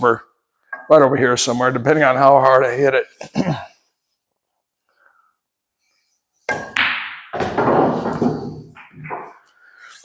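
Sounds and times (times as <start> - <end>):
ball dropping into pocket: 6.5 - 9.4
cue striking ball: 6.5 - 9.4
knocks and clatter: 6.5 - 9.4
pool balls clicking: 6.5 - 9.5.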